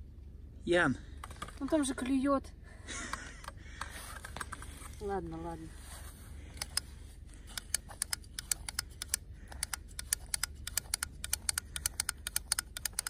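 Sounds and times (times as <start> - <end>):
fishing reel clicking: 7.5 - 13.0.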